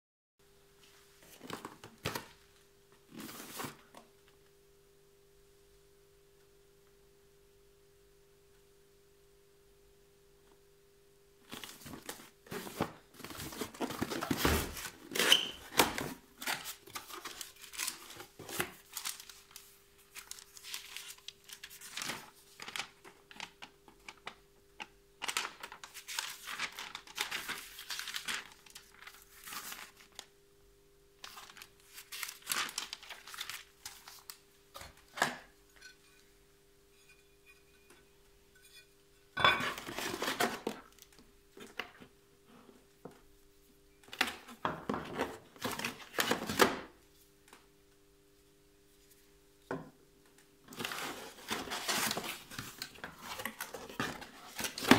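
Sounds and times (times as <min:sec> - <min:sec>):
paper and cardboard crinkling: 0:11.5 - 0:24.4, 0:25.2 - 0:30.3, 0:31.2 - 0:35.2, 0:39.5 - 0:41.8, 0:50.7 - 0:54.9.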